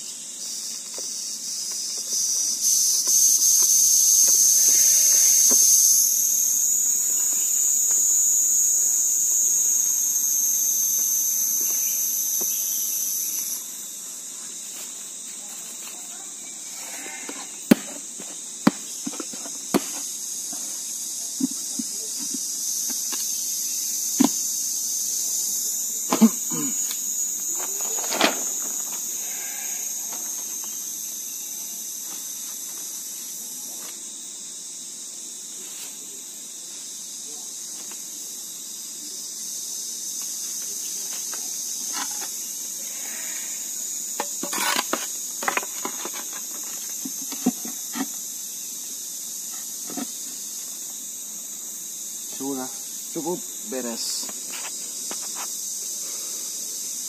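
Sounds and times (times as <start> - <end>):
insect chorus: 0.0 - 57.0
knocks on wooden box: 17.7 - 18.0, 24.2 - 24.4.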